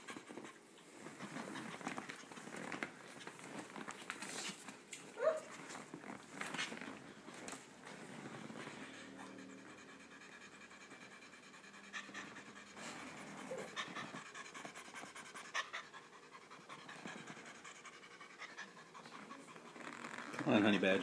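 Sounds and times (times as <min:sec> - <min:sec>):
cat panting: 0:07.0 - 0:19.9.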